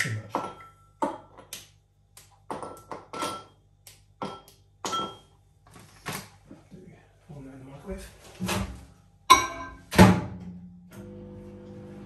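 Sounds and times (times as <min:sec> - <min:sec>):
kitchen items knocking and clicking: 0:00.0 - 0:05.4.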